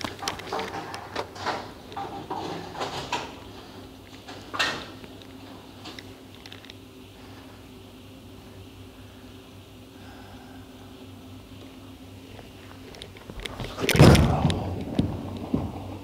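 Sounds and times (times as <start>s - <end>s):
machinery hum: 0.0s - 16.0s
bowling knocks and rattles: 13.6s - 16.0s
ball crashing into pins: 13.7s - 16.0s.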